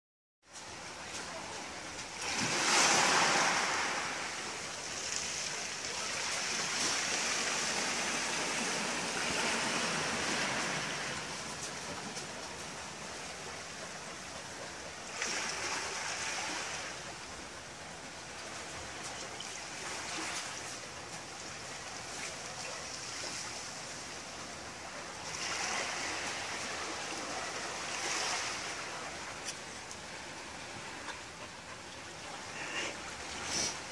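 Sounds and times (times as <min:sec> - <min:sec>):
waves washing over pebble beach: 0:01.2 - 0:13.3, 0:25.2 - 0:29.4.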